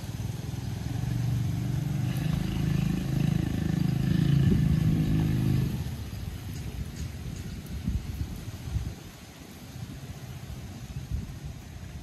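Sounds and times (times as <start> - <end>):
motorcycle engine running: 0.0 - 6.7.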